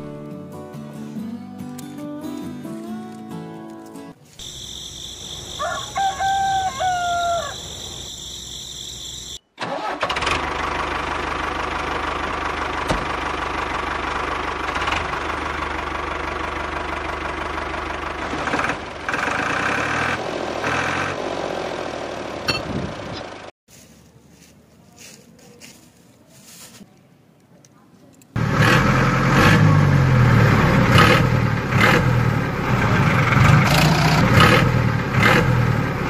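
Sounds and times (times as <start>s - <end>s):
engine running: 4.4s - 23.5s, 28.4s - 36.0s
rooster crowing: 4.5s - 9.4s.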